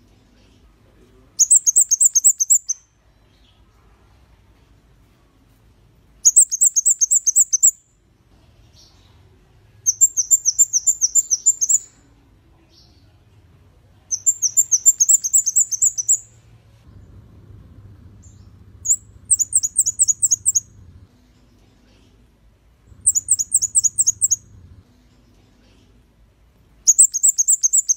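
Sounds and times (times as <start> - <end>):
small bird high thin song: 1.4 - 3.7, 6.2 - 8.0, 9.8 - 13.1, 14.1 - 16.4, 18.2 - 20.8, 22.9 - 24.5, 26.8 - 27.9.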